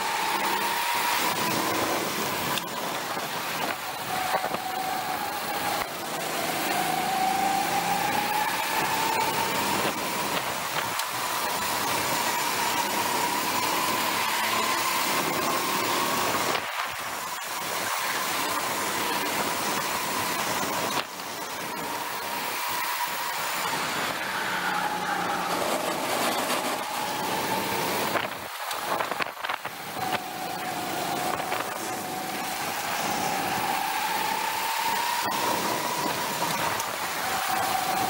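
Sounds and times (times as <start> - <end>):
wind noise on microphone: 0.0 - 13.4, 25.7 - 38.0
go-kart motor: 0.0 - 38.0.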